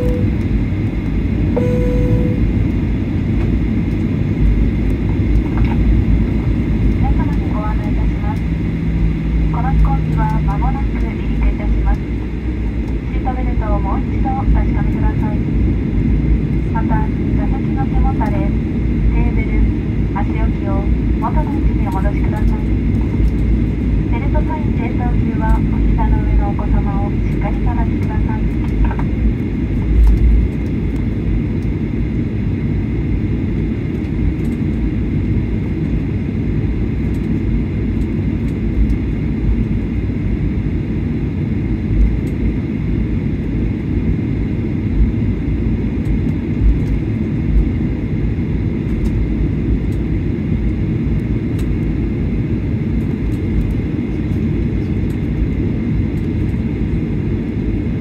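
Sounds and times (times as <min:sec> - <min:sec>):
faint steady whine: 0:00.0 - 0:36.0
aircraft engines low rumble: 0:00.0 - 0:58.0.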